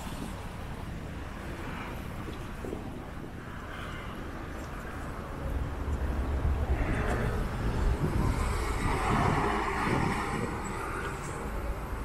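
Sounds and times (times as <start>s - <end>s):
low traffic rumble: 0.0s - 12.0s
vehicle passing: 5.3s - 12.0s.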